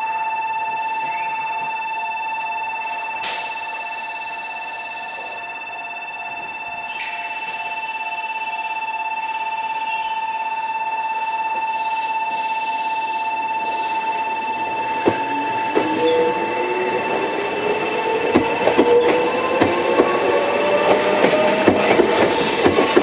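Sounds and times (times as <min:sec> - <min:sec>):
electronic warning bell ringing: 0:00.0 - 0:23.0
train motors whining: 0:13.0 - 0:23.0.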